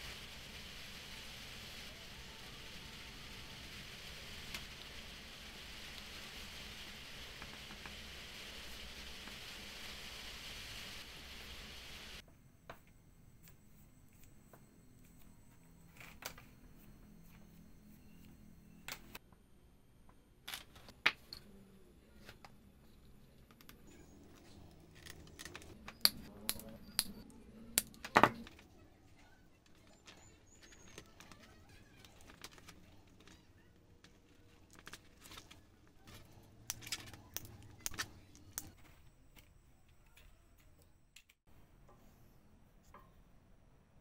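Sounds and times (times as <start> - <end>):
wooden toy parts clicking: 29.6 - 41.4.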